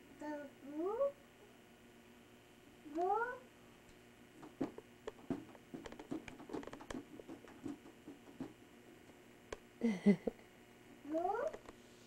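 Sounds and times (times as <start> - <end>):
balloon tapping and squeaking: 4.6 - 8.6.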